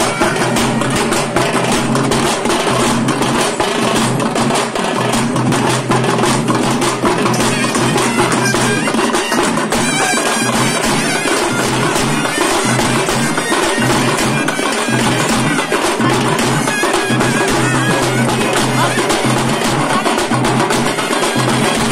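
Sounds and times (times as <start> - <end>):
reedy wind instrument: 0.0 - 1.5, 7.3 - 21.9
hand drums beating fast: 0.0 - 21.9.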